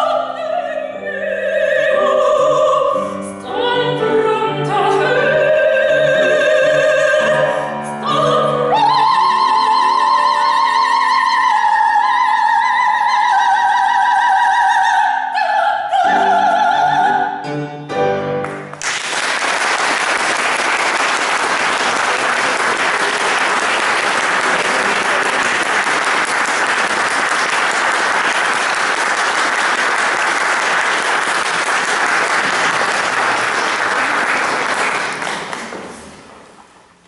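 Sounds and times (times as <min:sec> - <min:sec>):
person singing: 0:00.0 - 0:17.6
piano chord: 0:17.2 - 0:18.9
audience applauding: 0:18.4 - 0:36.3.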